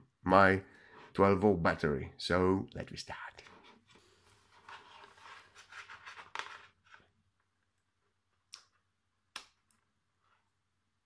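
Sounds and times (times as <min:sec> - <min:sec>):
hands scraping and rustling: 0:03.4 - 0:07.1.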